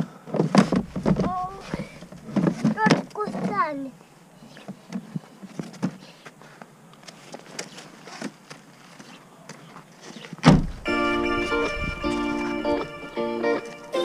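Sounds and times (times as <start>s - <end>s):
car tailgate shutting thump: 10.4s - 11.0s.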